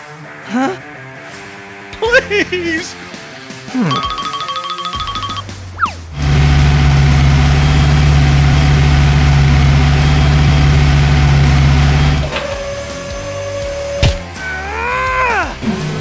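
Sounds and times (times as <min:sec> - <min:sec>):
heavy vehicle engine idling: 0:06.2 - 0:13.8.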